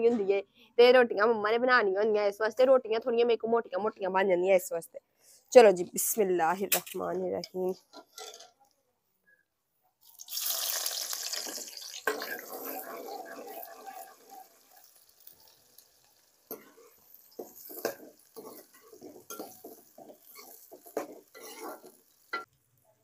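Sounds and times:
onions sizzling in hot oil: 0:10.1 - 0:22.5.

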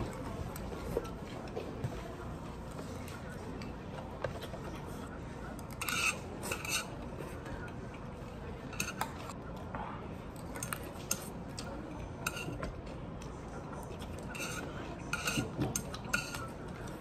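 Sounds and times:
metal spoon clinking on steel bowl: 0:14.3 - 0:16.5.

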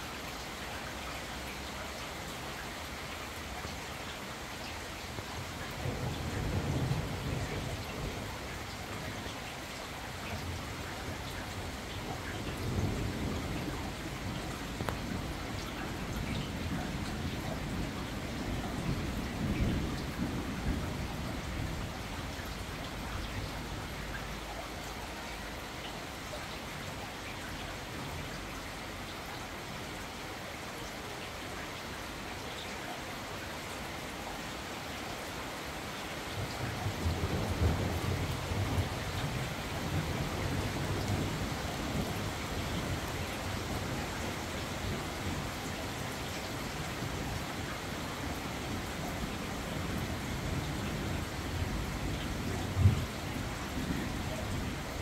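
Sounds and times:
steady rain falling: 0:00.0 - 0:55.0
distant thunder rolling: 0:05.8 - 0:09.3, 0:49.1 - 0:55.0.

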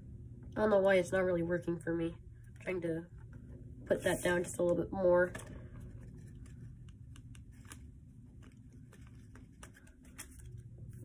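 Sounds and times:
low hum: 0:00.0 - 0:11.0
paper crinkling: 0:05.7 - 0:11.0.

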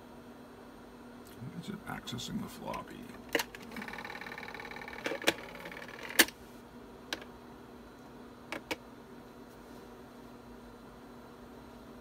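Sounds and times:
steady low hum: 0:00.0 - 0:12.0
floppy disk drive buzzing: 0:01.5 - 0:07.4, 0:08.4 - 0:08.9.

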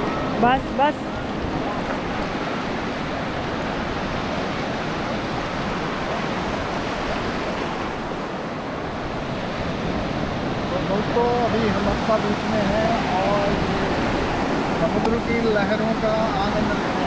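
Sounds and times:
waves breaking on sand: 0:00.0 - 0:17.0.

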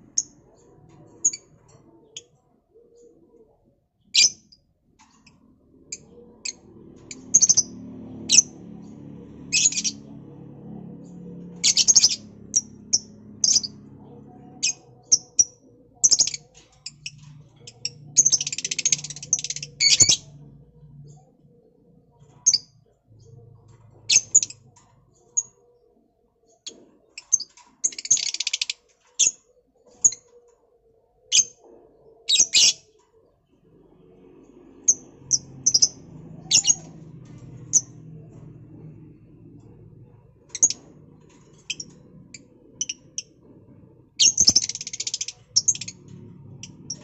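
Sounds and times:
lovebirds chirping: 0:05.2 - 0:10.2, 0:11.2 - 0:21.2, 0:34.9 - 0:38.5, 0:44.2 - 0:47.0.

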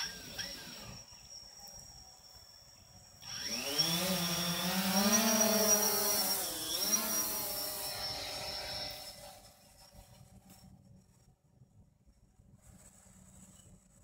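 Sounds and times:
drone propellers buzzing: 0:00.0 - 0:09.7.

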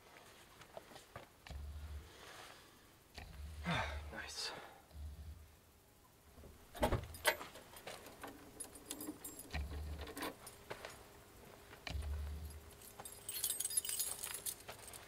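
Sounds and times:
small metal objects jangling: 0:07.1 - 0:11.0, 0:11.9 - 0:15.0.

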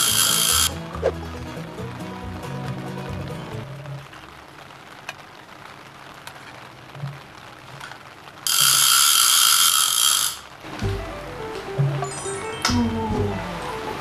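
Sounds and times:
mechanical whirring with ratchet buzz: 0:00.0 - 0:00.7, 0:08.5 - 0:10.5
background music with bass: 0:00.0 - 0:03.8, 0:10.8 - 0:14.0.

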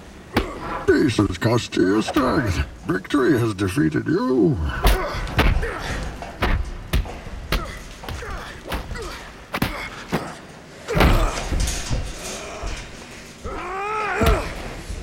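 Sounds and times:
punches landing: 0:00.3 - 0:00.9, 0:04.7 - 0:15.0.

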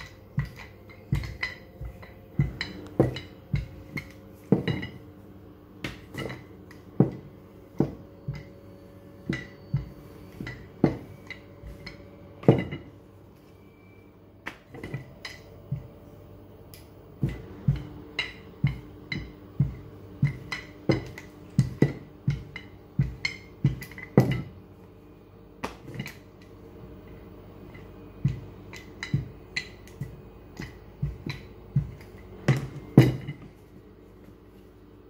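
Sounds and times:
rolling pin knocking on countertop: 0:00.0 - 0:05.0, 0:05.8 - 0:08.6, 0:09.2 - 0:12.9, 0:17.2 - 0:24.5.

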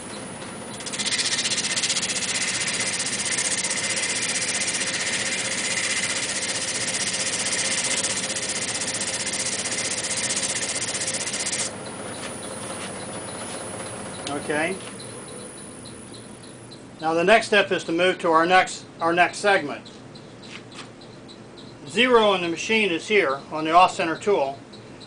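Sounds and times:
sandpaper scratching spinning wood: 0:00.8 - 0:11.7.

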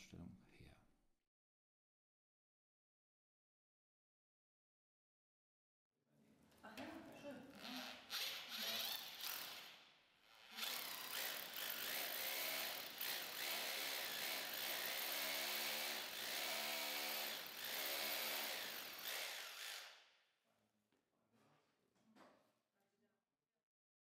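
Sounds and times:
hammer drill boring into wall: 0:07.6 - 0:20.1.

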